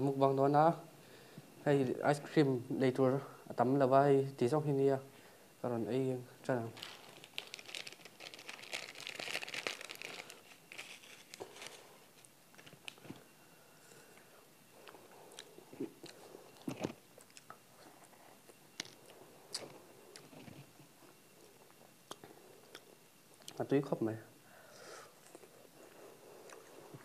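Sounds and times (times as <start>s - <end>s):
plastic wrapper crinkling and tearing: 6.8s - 13.2s.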